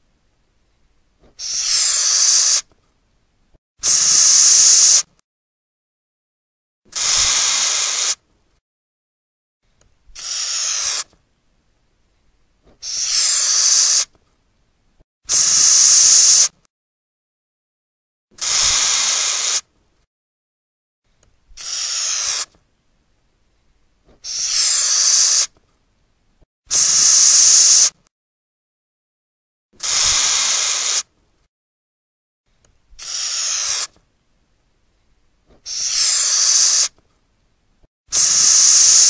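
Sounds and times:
cockroach hissing: 1.4 - 2.6, 3.8 - 5.1, 7.0 - 8.2, 10.2 - 11.0, 12.8 - 14.1, 15.3 - 16.5, 18.4 - 19.6, 21.6 - 22.5, 24.2 - 25.5, 26.7 - 28.0, 29.8 - 31.0, 33.0 - 33.9, 35.6 - 36.9, 38.1 - 39.0.

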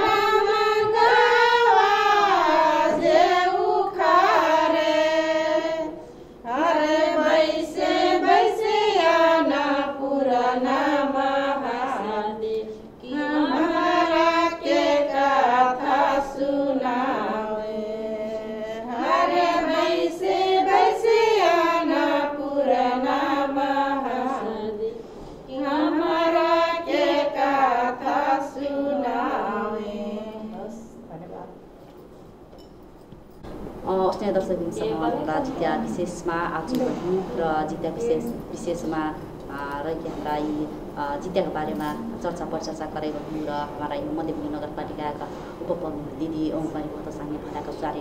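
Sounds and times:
women singing: 0.0 - 31.1, 33.9 - 48.0
singers breathing: 6.0 - 6.5, 24.9 - 25.5.

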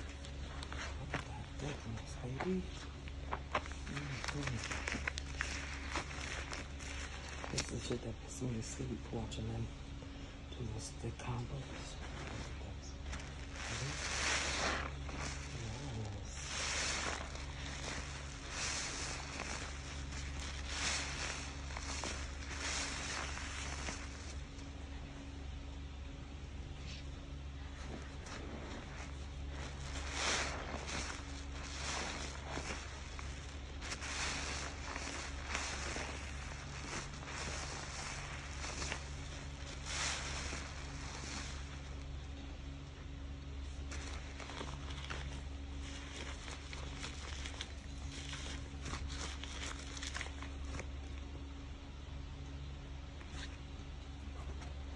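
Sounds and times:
steady low hum: 0.0 - 54.9
sponge squelching in suds: 12.0 - 24.5, 27.8 - 42.2.

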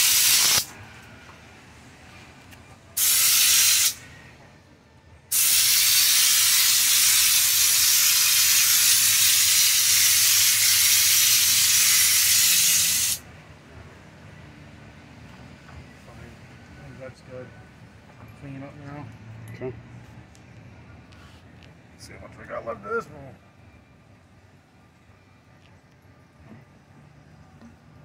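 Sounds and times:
spray gun hissing: 0.0 - 0.7, 3.0 - 4.0, 5.3 - 13.2.

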